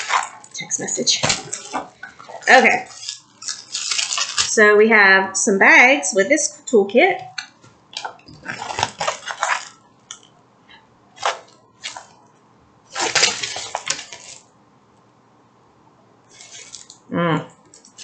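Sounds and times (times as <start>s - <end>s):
plastic packaging crinkling: 0.0s - 4.6s, 8.0s - 10.3s, 11.2s - 12.2s, 12.9s - 14.5s, 16.3s - 17.1s, 17.7s - 18.0s.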